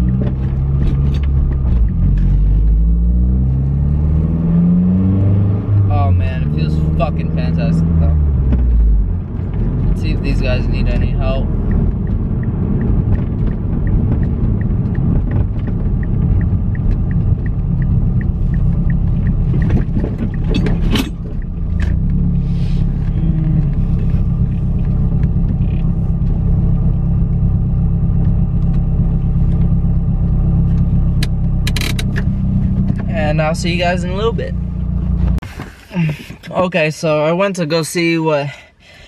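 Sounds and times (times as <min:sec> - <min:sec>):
car engine and road rumble: 0:00.0 - 0:39.0
faint even ticking: 0:11.4 - 0:22.2.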